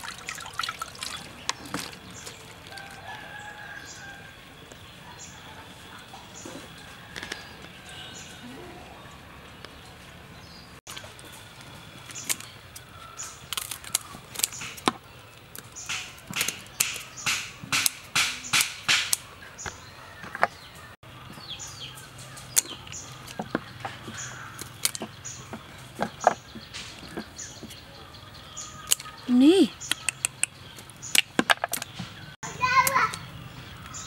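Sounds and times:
scissors snipping prawn shells: 12.2s - 14.9s, 15.6s - 19.2s, 28.8s - 29.2s.

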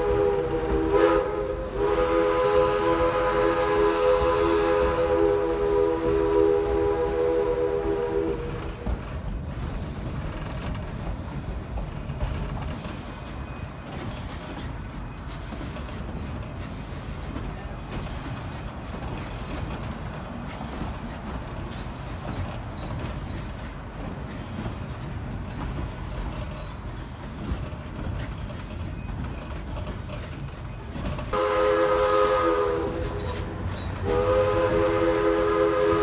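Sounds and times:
steam whistle blasts: 0.0s - 8.8s, 31.3s - 36.0s
train rumbling: 0.0s - 36.0s.

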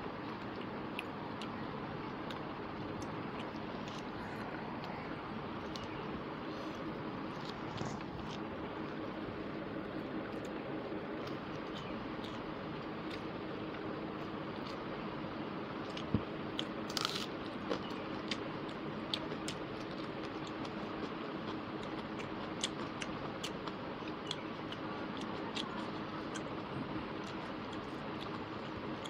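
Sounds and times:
chewing with wet mouth clicks: 11.2s - 13.8s, 15.8s - 29.0s.

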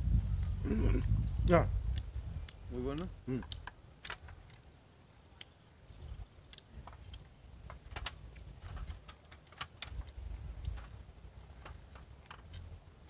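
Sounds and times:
faint low rumble: 0.0s - 3.6s, 9.8s - 13.0s.

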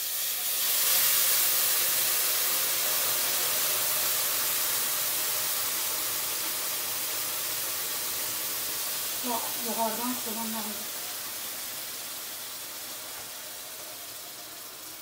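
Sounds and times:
syrup pouring into pot: 0.0s - 9.2s
semolina hissing and sizzling: 0.0s - 15.0s.

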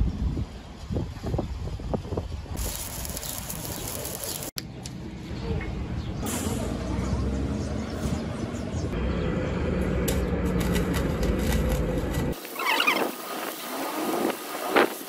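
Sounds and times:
welding arc hissing: 2.6s - 4.6s, 12.3s - 15.0s
low hum and rumble: 8.6s - 12.4s.

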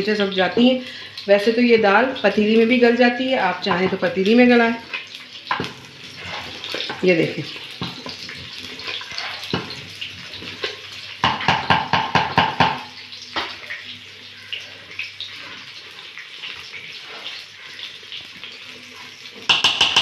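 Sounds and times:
ladle stirring dal: 3.7s - 12.4s, 13.4s - 20.0s.

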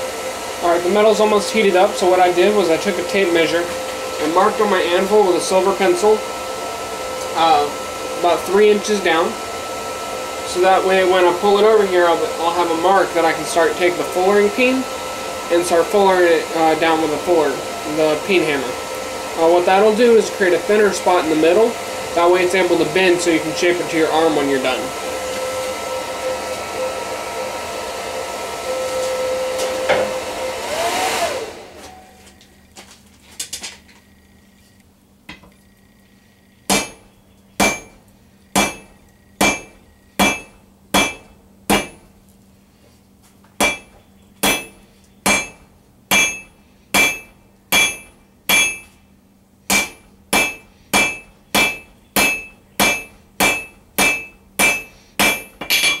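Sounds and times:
forge air blower rushing: 0.0s - 32.5s
hammer striking steel on anvil: 36.7s - 38.0s, 38.6s - 42.1s, 43.6s - 49.0s, 49.7s - 56.0s.

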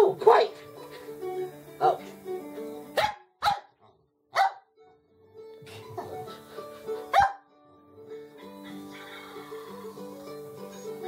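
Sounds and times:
background music: 0.0s - 3.6s, 4.4s - 11.0s
dog barking: 3.0s - 4.7s, 7.1s - 7.4s.

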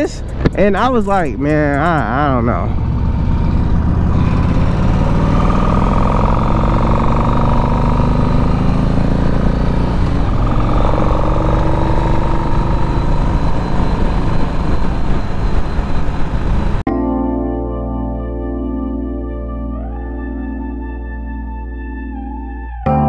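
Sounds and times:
motorcycle engine revving: 1.6s - 16.8s
wind rumbling on microphone: 8.6s - 16.8s.

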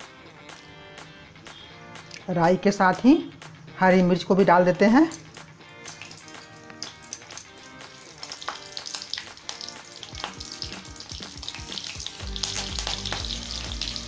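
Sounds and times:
seeds crackling in hot oil: 4.9s - 14.0s.

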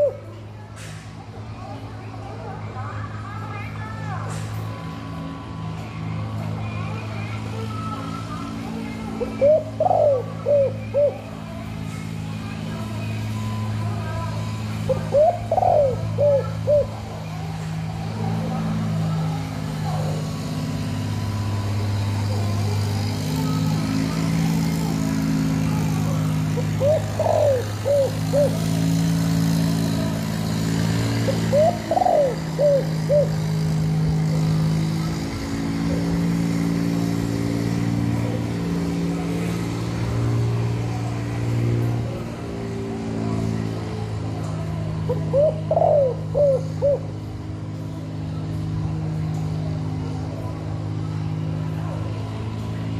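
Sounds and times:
dove cooing: 0.0s - 0.4s, 9.1s - 11.4s, 14.8s - 17.3s, 26.5s - 28.8s, 31.1s - 34.5s, 45.0s - 47.1s.

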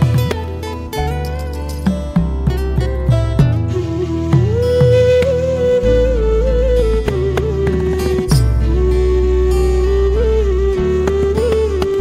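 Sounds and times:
beat: 0.0s - 6.0s
plucked string notes: 0.0s - 12.0s.

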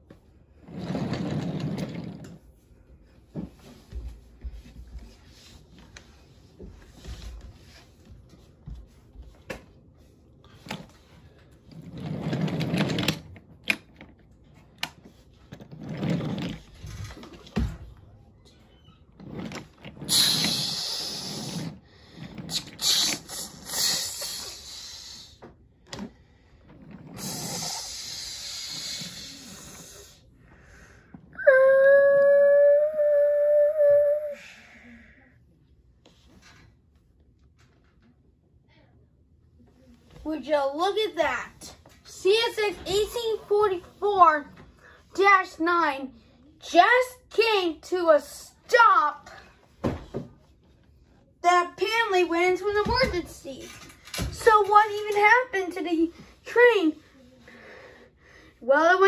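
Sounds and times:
toy train rolling on wooden track: 0.7s - 2.4s, 11.7s - 14.1s, 14.8s - 17.3s, 19.2s - 23.5s.

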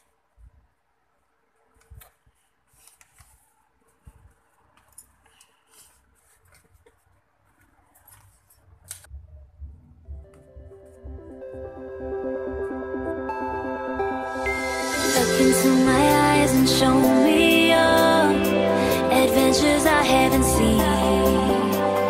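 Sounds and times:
electronic music: 9.8s - 22.0s.

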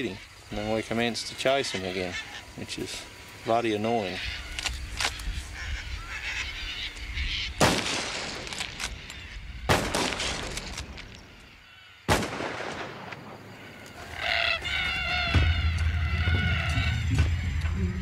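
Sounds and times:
cockatoos screeching: 0.1s - 3.2s, 3.8s - 7.7s, 13.5s - 17.6s
rifle shots: 7.6s - 8.9s, 9.7s - 10.9s, 12.1s - 13.4s.

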